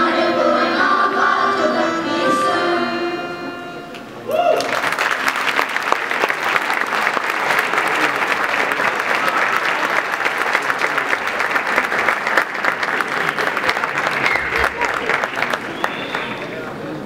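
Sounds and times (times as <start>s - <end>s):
audience applauding: 4.3s - 17.0s.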